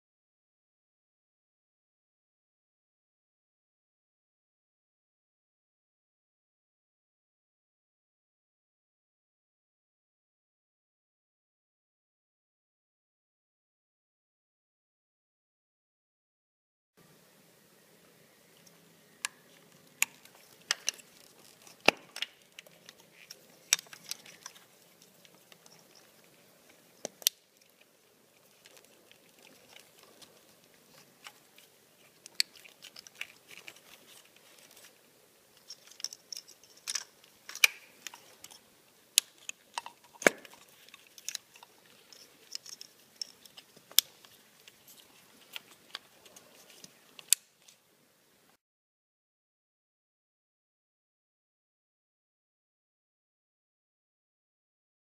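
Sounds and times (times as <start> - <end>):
wiring rustling: 18.5 - 47.8
plastic connectors clicking: 18.6 - 35.0, 35.6 - 47.7.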